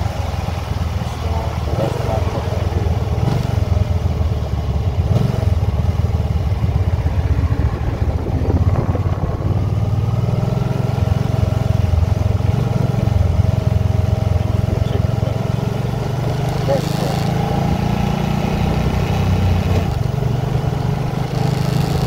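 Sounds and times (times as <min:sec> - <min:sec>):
motorcycle engine running: 0:00.0 - 0:22.0
wind buffeting microphone: 0:06.5 - 0:12.5.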